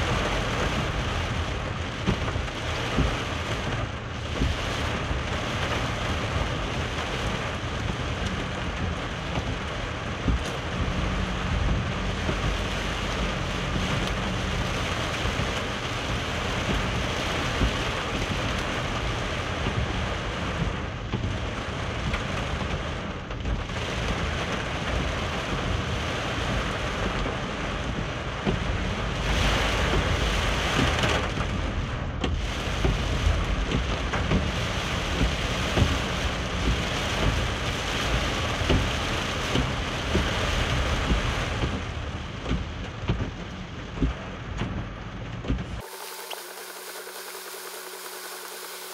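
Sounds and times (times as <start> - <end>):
heavy rain on a car roof: 0.0 - 48.9
tyres on a wet road: 0.0 - 48.9.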